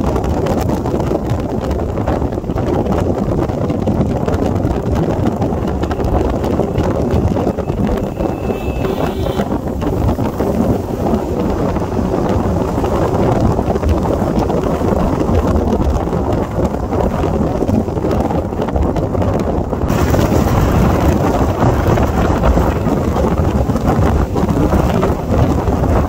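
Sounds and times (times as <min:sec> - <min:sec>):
wind rushing over microphone: 0:00.0 - 0:26.0
motorcycle engine: 0:03.4 - 0:14.0.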